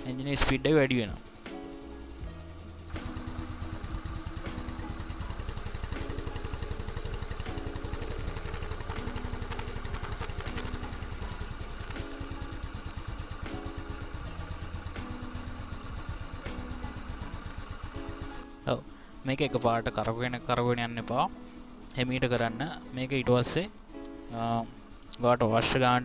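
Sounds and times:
scooter engine idling: 1.0s - 21.1s.

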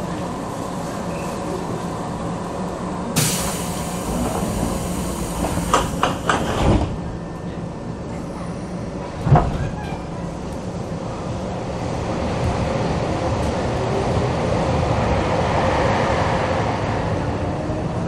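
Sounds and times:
train equipment humming: 0.0s - 12.6s
pneumatic door air hiss: 3.2s - 6.5s
sliding doors clacking and thumping: 4.0s - 7.1s, 9.1s - 10.0s.

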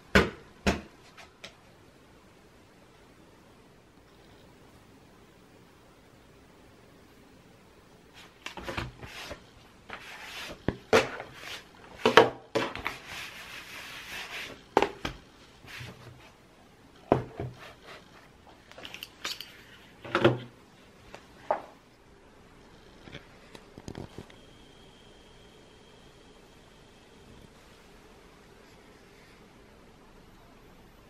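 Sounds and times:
rubbing and rustling: 8.1s - 16.5s.

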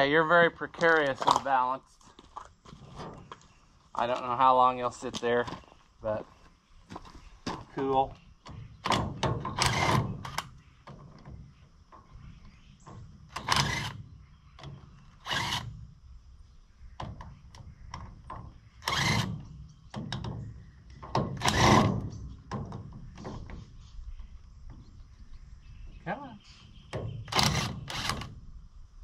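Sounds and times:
parts knocking and clunking: 6.9s - 16.0s, 16.9s - 25.0s.

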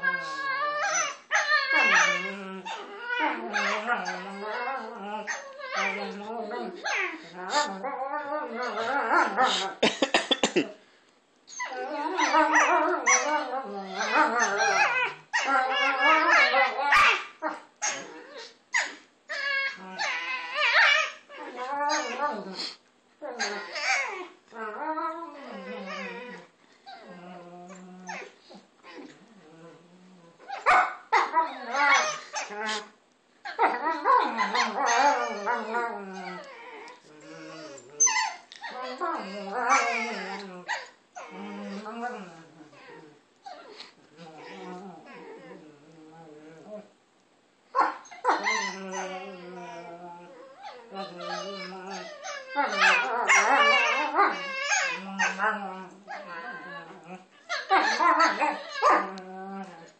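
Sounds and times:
dogs howl-like moaning and yips: 0.0s - 9.6s, 11.6s - 22.5s, 23.3s - 28.3s, 30.4s - 32.9s, 33.5s - 46.9s, 47.8s - 59.9s.

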